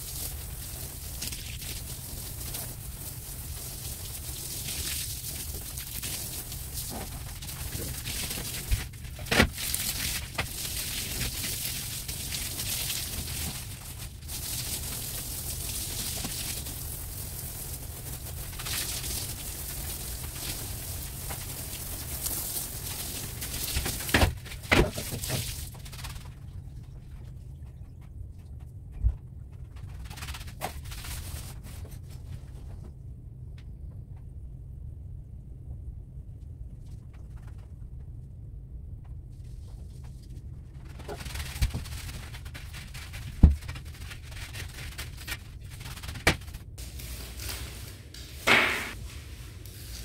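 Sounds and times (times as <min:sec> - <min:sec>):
water spraying from hose: 0:00.0 - 0:25.8, 0:46.8 - 0:50.0
low hum: 0:31.5 - 0:41.4.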